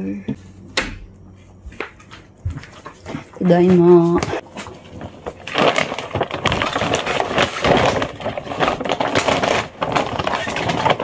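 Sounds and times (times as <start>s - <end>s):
items knocking: 1.8s - 11.0s
plastic bag rustling: 2.6s - 11.0s.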